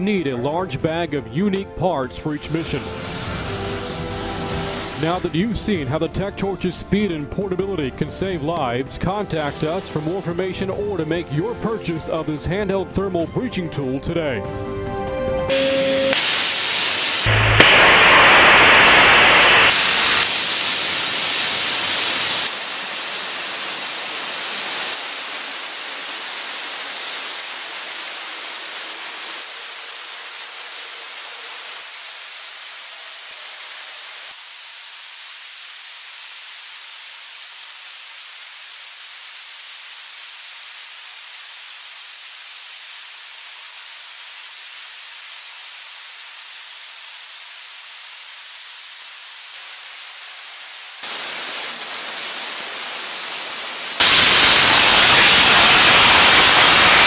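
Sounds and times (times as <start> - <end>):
water jet cutting stone hiss: 2.4 - 5.4, 9.3 - 10.4, 15.5 - 57.0.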